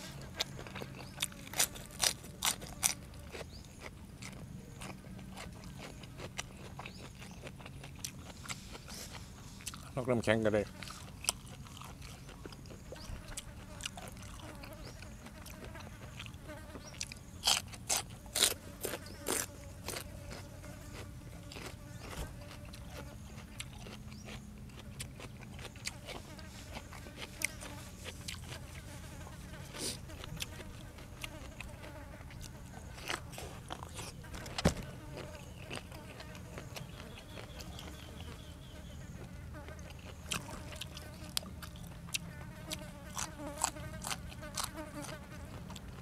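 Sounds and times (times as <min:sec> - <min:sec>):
crisp crunches of eating: 0:00.0 - 0:46.0
fly buzzing: 0:12.9 - 0:16.9, 0:25.9 - 0:45.6.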